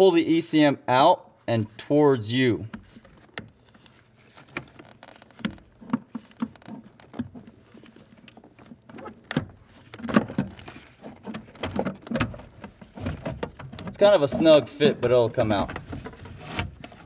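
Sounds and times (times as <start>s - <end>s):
metal case clicking and scraping: 2.7s - 15.0s.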